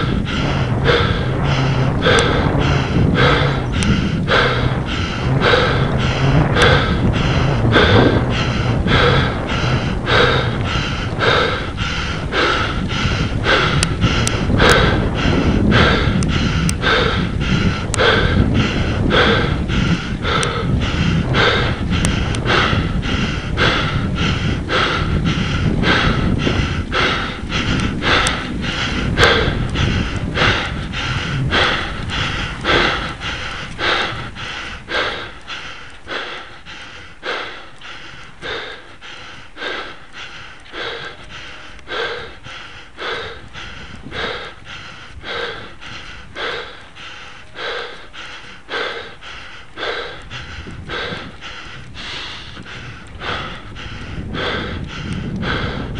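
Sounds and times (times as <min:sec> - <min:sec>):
cyclist breathing hard: 0:00.0 - 0:55.9
wind rumble on microphone: 0:00.0 - 0:55.9.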